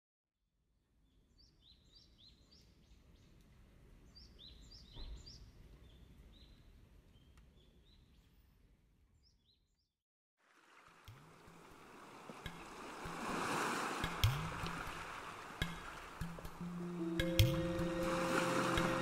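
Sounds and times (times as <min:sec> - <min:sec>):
small birds chirping: 0:01.0 - 0:08.4.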